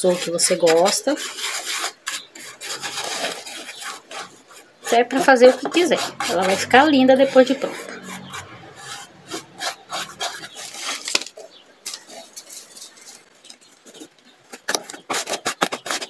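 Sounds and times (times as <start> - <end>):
paintbrush scraping on cardboard: 0.0 - 13.3
hand smoothing fabric: 2.5 - 10.8.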